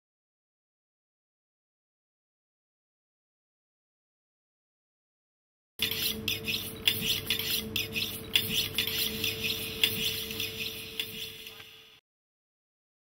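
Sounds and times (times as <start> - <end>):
steady hum: 5.8 - 12.0.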